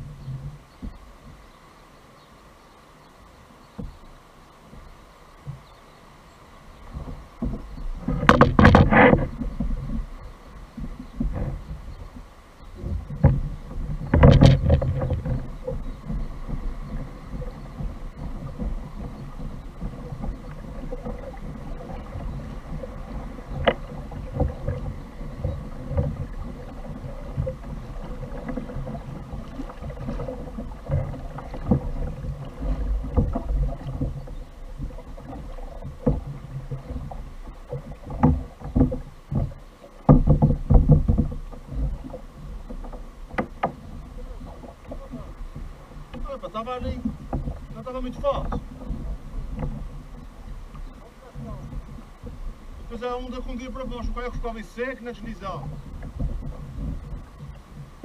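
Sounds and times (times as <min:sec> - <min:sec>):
water lapping against hull: 0:00.0 - 0:58.0
knocks on kayak: 0:07.0 - 0:10.0, 0:12.8 - 0:16.6, 0:17.4 - 0:42.2, 0:42.8 - 0:44.0.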